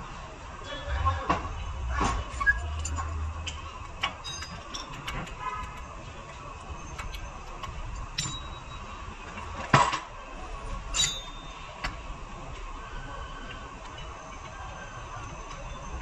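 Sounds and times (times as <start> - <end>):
sharp knocks and clinks: 2.6 - 5.9, 6.9 - 8.9, 11.0 - 12.0.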